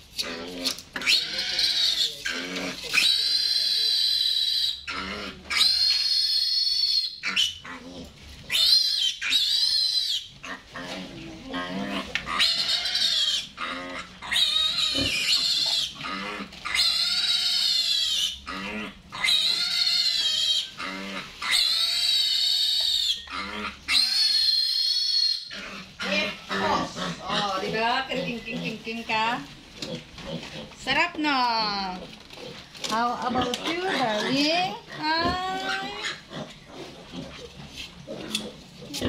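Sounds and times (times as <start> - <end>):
piglet squealing: 1.0 - 10.3, 11.6 - 27.5, 33.4 - 36.2.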